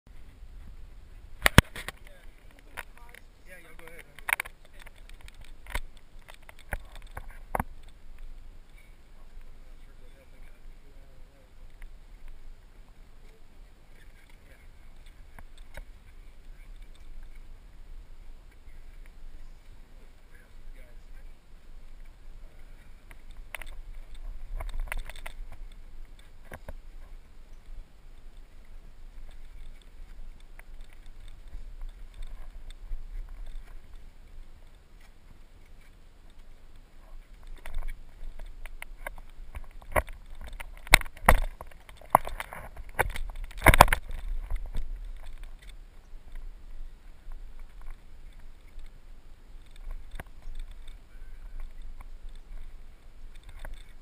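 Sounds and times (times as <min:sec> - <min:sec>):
wind rumbling: 0:00.1 - 0:54.0
camera handling noise: 0:01.4 - 0:02.9, 0:03.8 - 0:08.0, 0:23.1 - 0:26.8, 0:37.4 - 0:46.4.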